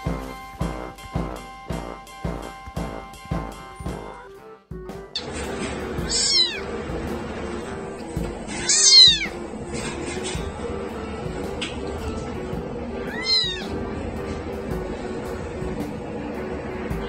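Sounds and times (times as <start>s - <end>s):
background music: 0.0s - 17.0s
kitten meowing: 6.0s - 6.7s, 8.5s - 9.4s, 13.0s - 13.7s.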